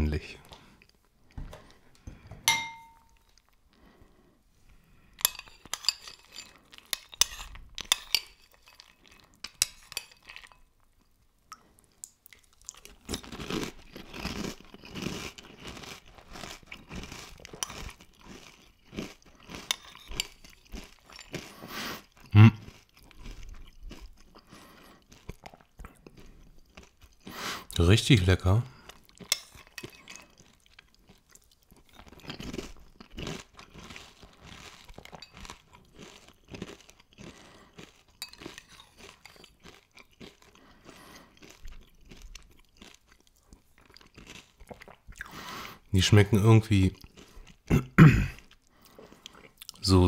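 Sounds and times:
short clink: 0:02.5 - 0:03.2
chewing crunchy muesli: 0:05.1 - 0:10.7, 0:11.6 - 0:45.9, 0:46.6 - 0:50.0.

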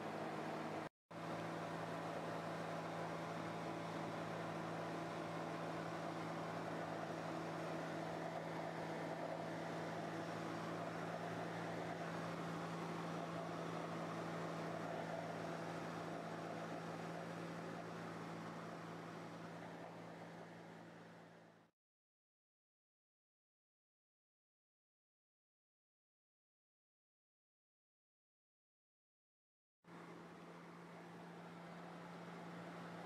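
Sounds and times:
plane engine drone: 0:00.0 - 0:21.6.

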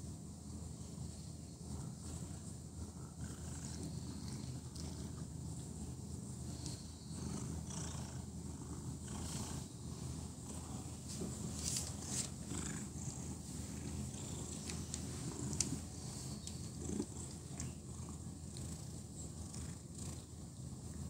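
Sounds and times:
cat purring: 0:01.6 - 0:21.0
rustles: 0:09.1 - 0:17.9.

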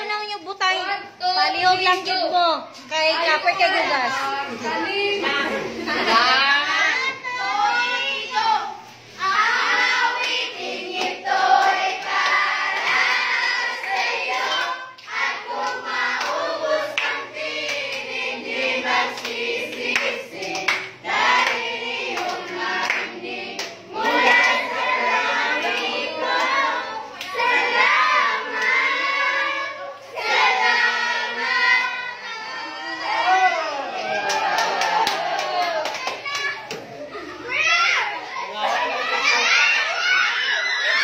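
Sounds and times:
group singing: 0:04.3 - 0:35.8.

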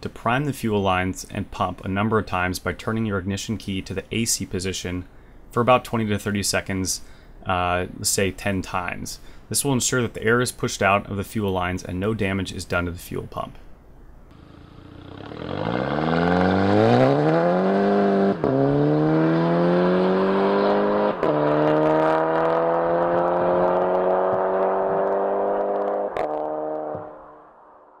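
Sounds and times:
car engine accelerating hard: 0:14.3 - 0:27.4.

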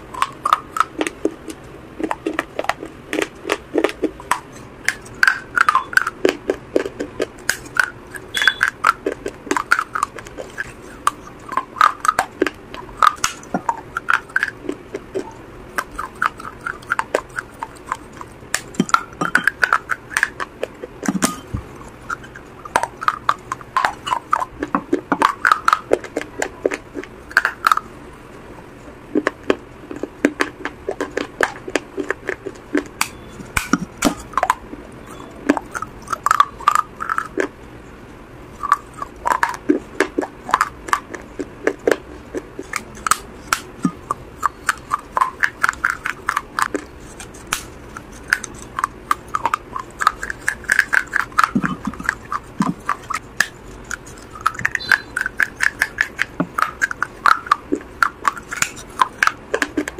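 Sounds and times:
crunching of baked clay being chewed: 0:00.0 - 0:37.6, 0:38.5 - 0:59.9.

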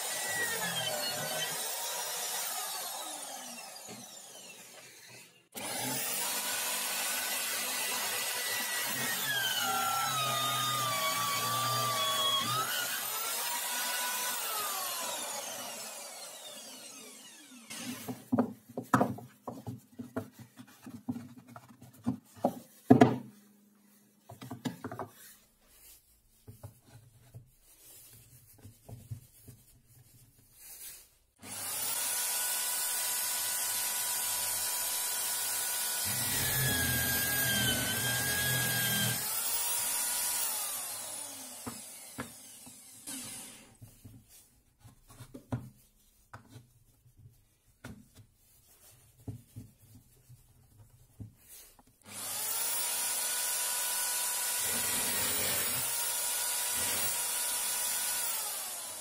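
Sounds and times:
drill bit boring into wood: 0:00.0 - 0:18.1, 0:31.4 - 0:43.7, 0:52.1 - 0:59.0
electric drill whining: 0:00.0 - 0:18.2, 0:31.4 - 0:43.8, 0:52.0 - 0:59.0
wooden blocks knocking and rubbing: 0:17.8 - 0:23.4, 0:24.2 - 0:25.4.

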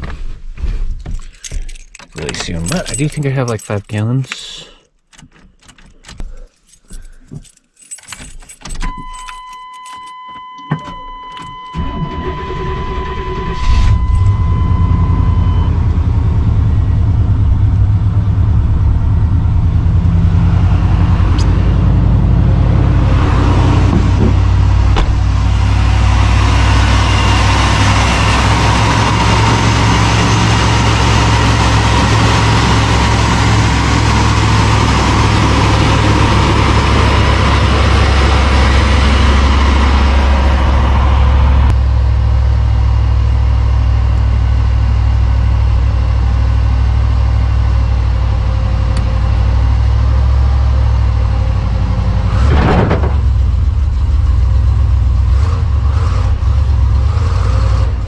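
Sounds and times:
keys jangling: 0:01.0 - 0:10.2
truck engine cranking and running: 0:01.0 - 0:58.0
dashboard warning tone: 0:08.8 - 0:16.7.

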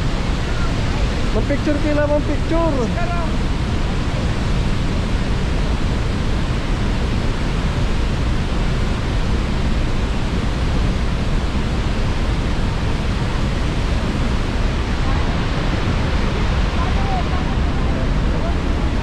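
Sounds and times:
waterfall roaring: 0:00.0 - 0:19.0.

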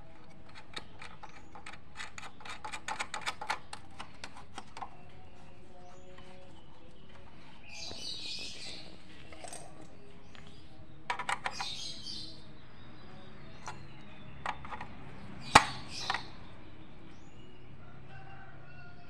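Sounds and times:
sharp metal clicks: 0:00.2 - 0:04.9.

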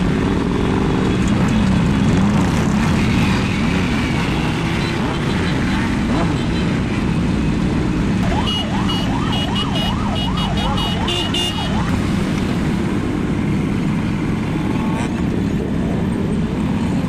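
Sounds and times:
motorcycle engines rumbling: 0:00.0 - 0:17.0
siren wailing: 0:08.2 - 0:12.6.

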